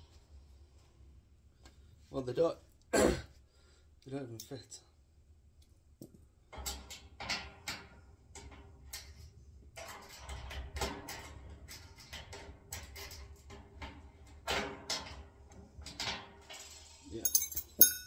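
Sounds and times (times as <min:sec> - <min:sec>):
metal clicks and knocks: 0:06.0 - 0:09.2.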